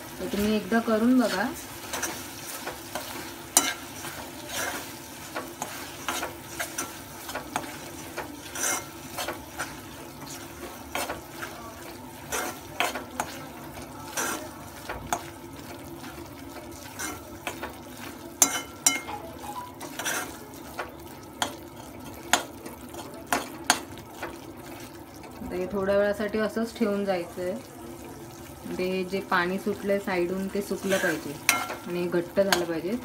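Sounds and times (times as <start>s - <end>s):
light sizzle: 0.0s - 33.0s
metal spoon scraping a pan: 0.3s - 19.2s, 19.8s - 20.5s, 30.7s - 32.8s
spoon clinking against pan: 18.4s - 20.3s, 31.4s - 31.9s.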